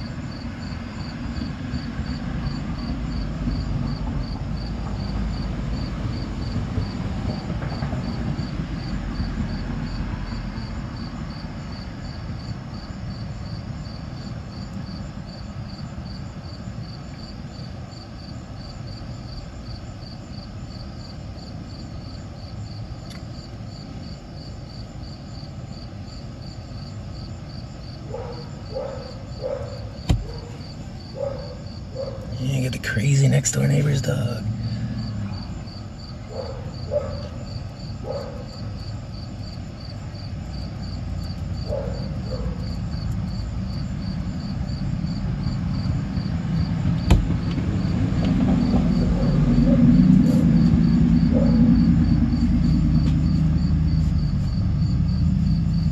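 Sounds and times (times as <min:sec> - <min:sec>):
cricket chirping: 0:00.0 - 0:55.9
dog barking: 0:28.1 - 0:32.4, 0:36.3 - 0:38.6, 0:41.6 - 0:42.6, 0:51.3 - 0:51.7
low rumble: 0:45.0 - 0:55.5.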